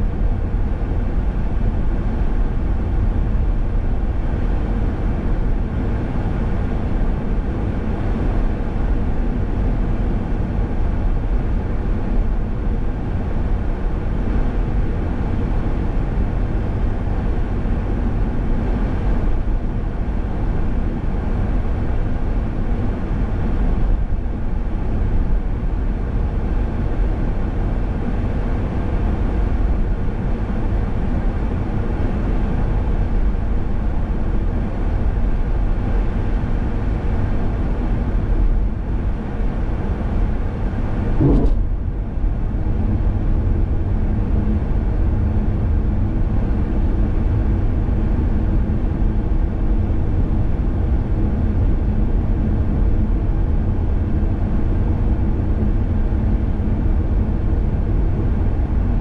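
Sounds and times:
car road noise: 41.2 - 41.8.

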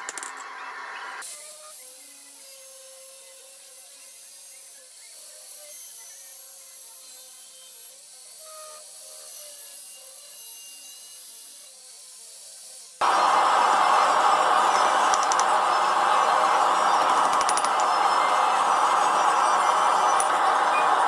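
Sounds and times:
angle grinder grinding steel: 7.0 - 21.0
loud rushing noise: 13.0 - 21.0.

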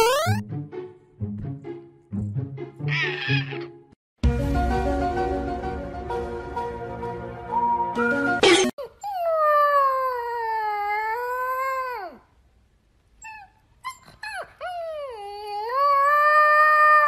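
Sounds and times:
puppy howling: 9.0 - 12.2, 14.3 - 17.0.

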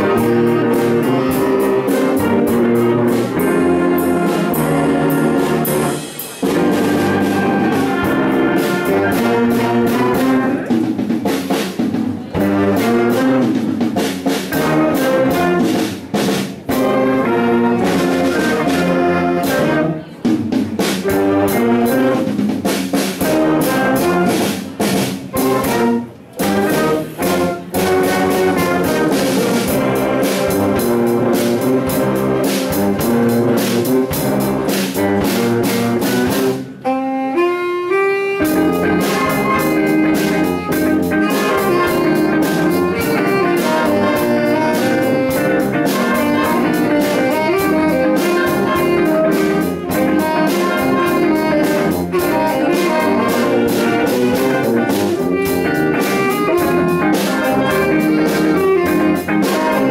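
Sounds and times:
concert band playing jazz: 0.0 - 59.9
drum set: 0.0 - 59.9.

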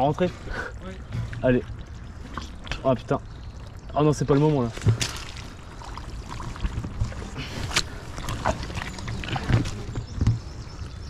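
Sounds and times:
boots squelching through mud: 4.6 - 10.2.

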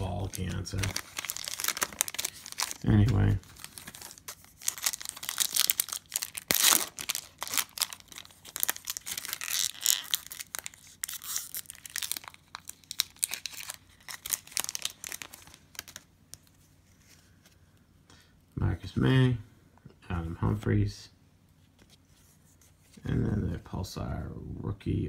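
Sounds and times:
card pack wrapper tearing and crinkling: 0.0 - 16.5.

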